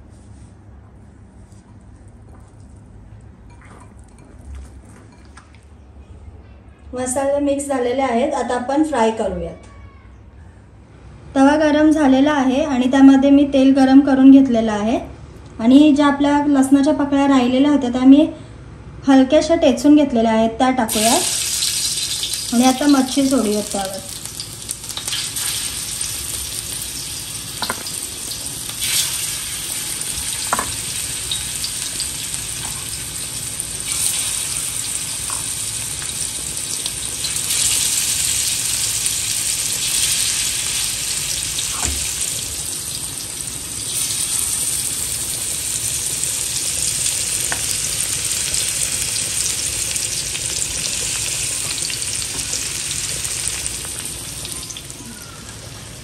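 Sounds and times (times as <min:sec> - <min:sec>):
fish sizzling in hot oil: 0:20.9 - 0:55.0.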